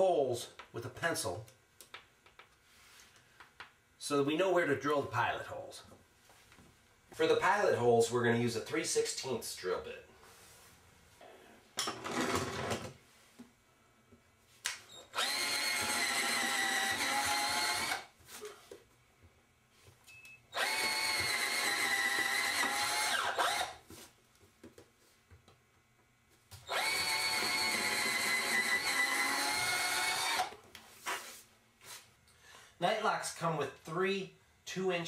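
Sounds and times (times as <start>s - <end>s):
cordless drill whining: 14.9s - 18.1s, 20.5s - 23.8s, 26.6s - 30.6s.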